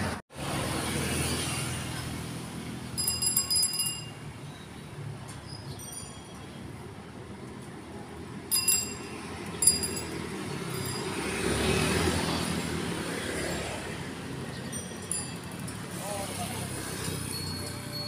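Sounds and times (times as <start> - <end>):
motorbikes passing: 0.0 - 4.1, 7.3 - 18.0
street traffic: 0.0 - 18.0
bicycle bell ringing: 2.9 - 4.5, 5.7 - 6.7, 8.4 - 18.0.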